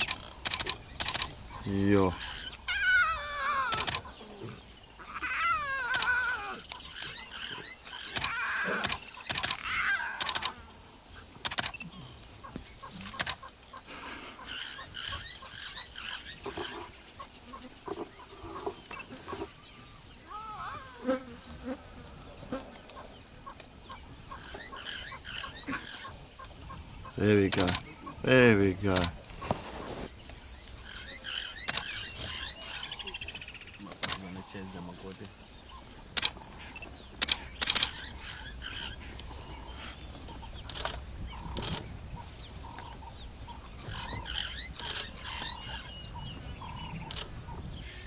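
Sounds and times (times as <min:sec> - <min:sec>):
sharp clicks: 0:00.0 - 0:01.4, 0:03.7 - 0:04.1, 0:05.9 - 0:06.8, 0:07.9 - 0:10.6, 0:11.4 - 0:11.9, 0:13.0 - 0:13.9, 0:27.4 - 0:27.9, 0:28.9 - 0:29.2, 0:31.6 - 0:32.1, 0:33.9 - 0:34.4, 0:36.1 - 0:36.4, 0:37.2 - 0:38.1, 0:40.6 - 0:41.9, 0:47.0 - 0:47.3
warbling calls: 0:00.0 - 0:19.6.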